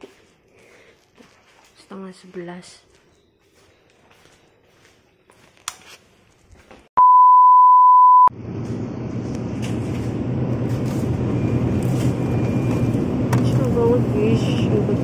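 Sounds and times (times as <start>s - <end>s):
loud test-tone beep: 7.0s - 8.3s
refrigerated shelves humming: 8.3s - 15.0s.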